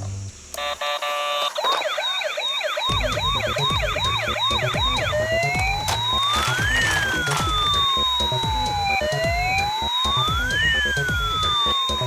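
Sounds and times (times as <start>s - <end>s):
rapid electronic beeps: 0.6s - 12.0s
toy siren yelping and wailing: 0.6s - 12.0s
background music with steady beat: 2.9s - 12.0s.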